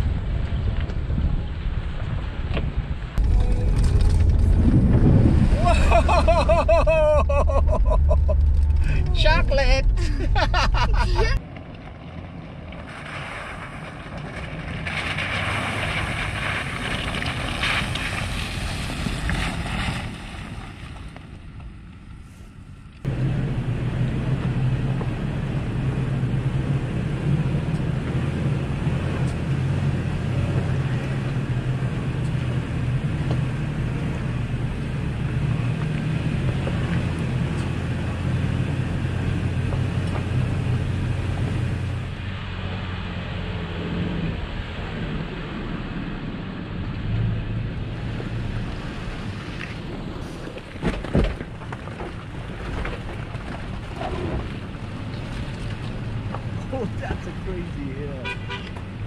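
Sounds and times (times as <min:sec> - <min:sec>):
rushing hiss and rumble: 0:00.0 - 0:11.4, 0:12.7 - 0:59.0
truck engine humming under load: 0:01.5 - 0:12.9, 0:22.6 - 0:59.0.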